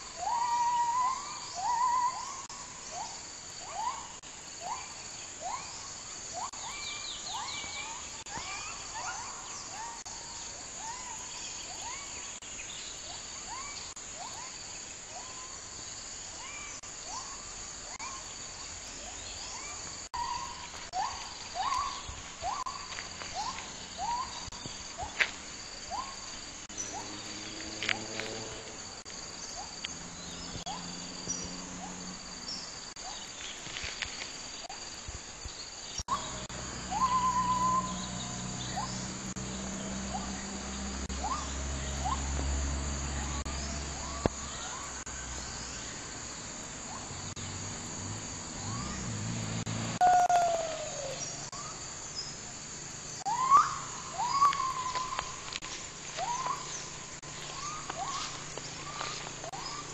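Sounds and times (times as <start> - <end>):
insects buzzing: 0.0 - 59.9
gibbons hooting: 0.2 - 10.0, 19.5 - 25.2, 36.1 - 39.1, 39.8 - 42.4, 53.3 - 55.3.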